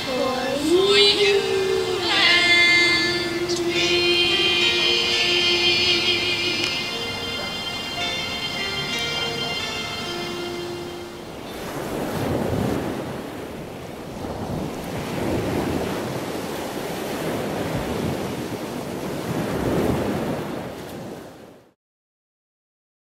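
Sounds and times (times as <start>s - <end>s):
held song note: 0.0s - 12.0s
surf rushing: 0.0s - 21.4s.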